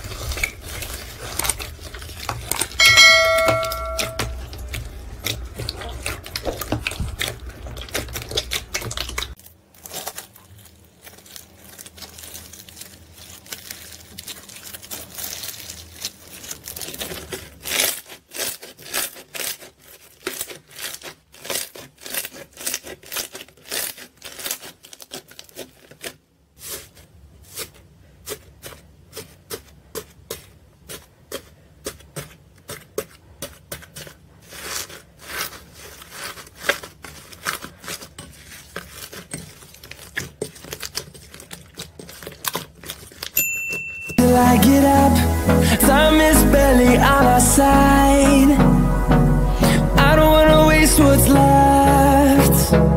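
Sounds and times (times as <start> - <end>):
slime crackling and popping: 0.0 - 3.2, 4.3 - 26.9, 27.5 - 43.4.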